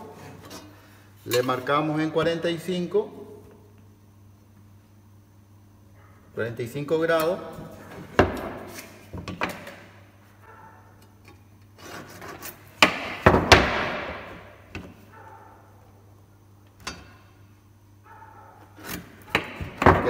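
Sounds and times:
tools knocking on workbench: 0:08.1 - 0:08.6.

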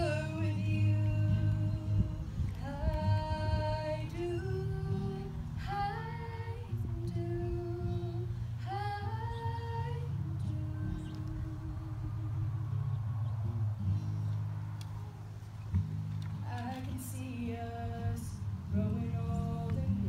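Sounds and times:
woman singing into a microphone: 0:00.0 - 0:12.7, 0:16.4 - 0:20.0.

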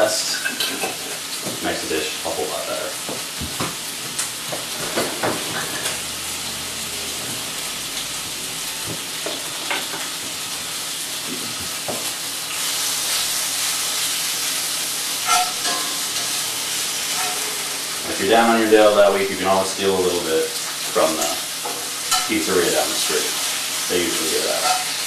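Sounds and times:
bacon sizzling in a skillet: 0:00.0 - 0:25.0
utensil scraping a pan: 0:15.2 - 0:16.4, 0:17.0 - 0:17.7.

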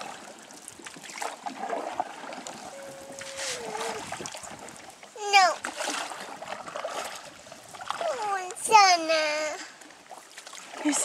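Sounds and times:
water dripping along hull: 0:00.0 - 0:10.8
canoe paddle strokes in water: 0:00.0 - 0:11.0
short hum falling in pitch: 0:02.6 - 0:04.2.

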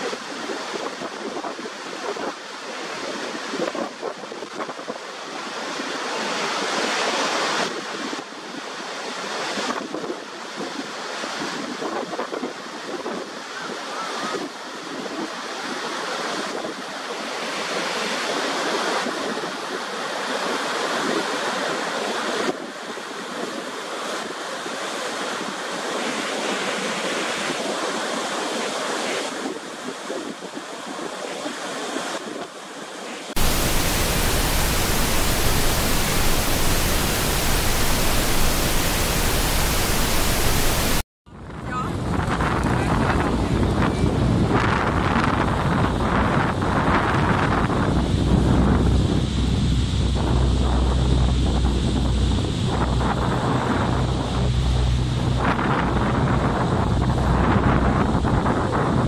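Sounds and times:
waterfall roaring: 0:33.3 - 0:41.0, 0:48.0 - 0:59.0
flat steady hiss: 0:33.4 - 0:41.0
wind buffeting microphone: 0:33.4 - 0:59.0.

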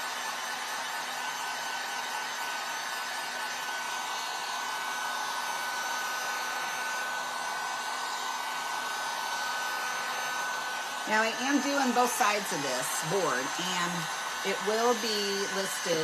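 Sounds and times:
heat gun blowing hot air: 0:00.0 - 0:16.0.

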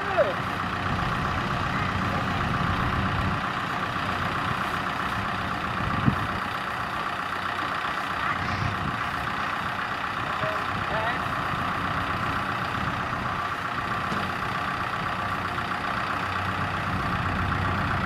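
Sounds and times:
diesel engine running: 0:00.0 - 0:18.0
short engine knock: 0:14.0 - 0:14.5.

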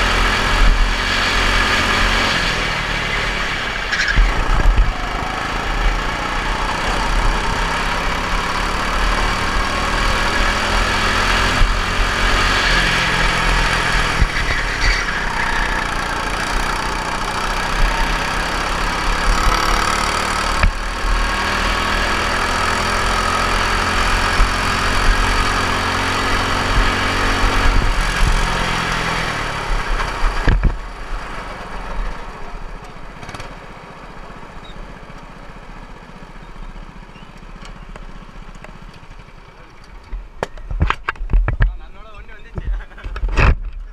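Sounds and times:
racing kart engine: 0:00.0 - 0:41.3.

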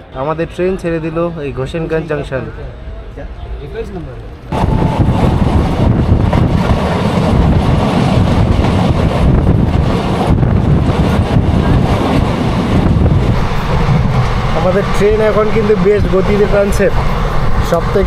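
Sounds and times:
train wheels rumbling on track: 0:04.2 - 0:18.0
wind buffeting microphone: 0:04.5 - 0:18.0.

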